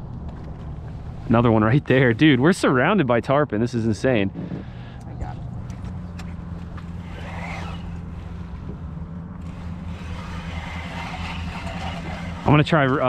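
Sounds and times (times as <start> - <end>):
outboard motor idling: 5.7 - 13.0.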